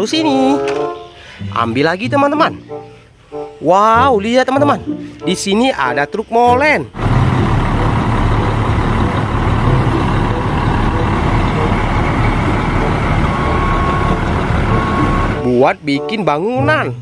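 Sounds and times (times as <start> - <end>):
diesel engine running: 6.9 - 15.6
mixer drum turning: 7.0 - 15.4
short high tone: 9.8 - 15.6.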